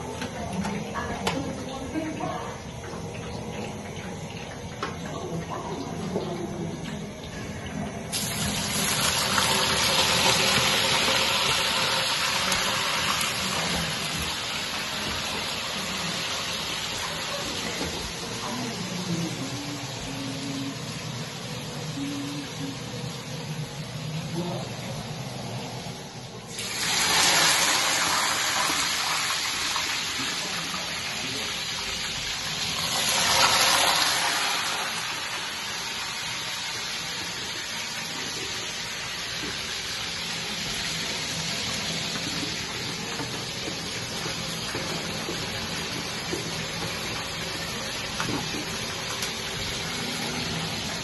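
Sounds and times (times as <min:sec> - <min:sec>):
chips sizzling in hot oil: 0:08.1 - 0:18.8, 0:26.5 - 0:51.0.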